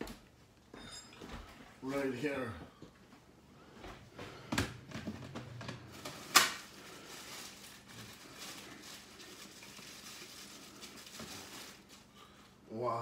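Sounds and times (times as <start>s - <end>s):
plastic bag crinkling: 5.6s - 12.4s.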